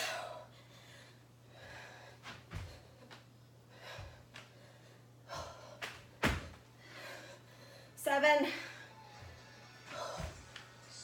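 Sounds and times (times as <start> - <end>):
woman breathing hard: 0.0 - 9.2, 9.8 - 10.6
dull thuds on exercise mat: 5.4 - 6.6.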